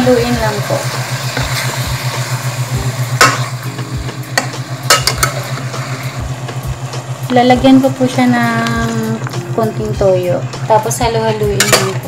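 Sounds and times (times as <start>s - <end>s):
chicken sizzling in a pot: 0.0s - 12.0s
steady low hum: 0.0s - 12.0s
metal spatula clinking on pot: 4.9s - 5.4s, 11.6s - 12.0s.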